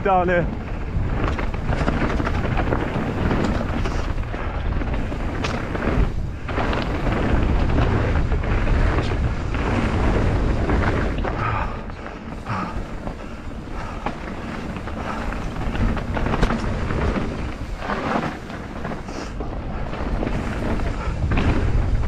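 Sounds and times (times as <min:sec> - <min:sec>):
bike knocking and rattling: 0:00.0 - 0:22.0
tyres rumbling over gravel: 0:00.0 - 0:22.0
wind buffeting microphone: 0:00.0 - 0:22.0.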